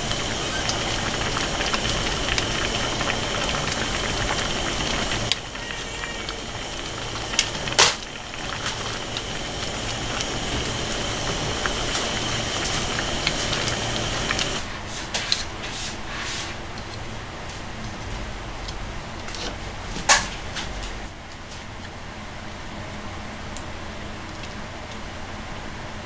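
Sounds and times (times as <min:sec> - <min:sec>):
sauce simmering in a frying pan: 0:00.0 - 0:14.7.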